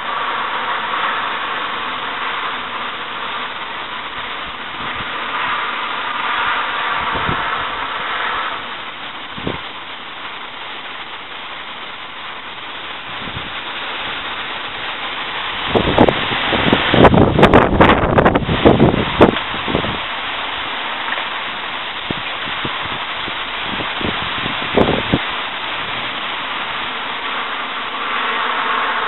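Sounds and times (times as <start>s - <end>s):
wind rushing through trees: 0.0s - 29.0s
wind buffeting the microphone: 3.5s - 9.9s, 12.9s - 20.2s, 22.0s - 26.9s.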